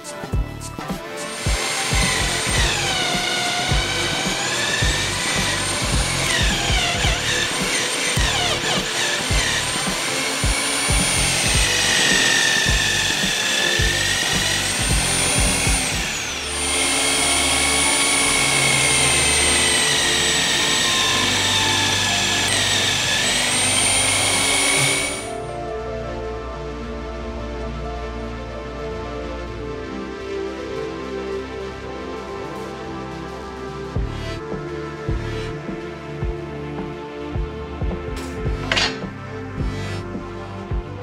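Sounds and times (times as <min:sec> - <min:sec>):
background music: 0:00.0 - 0:41.0
drill press motor whine: 0:01.3 - 0:25.8.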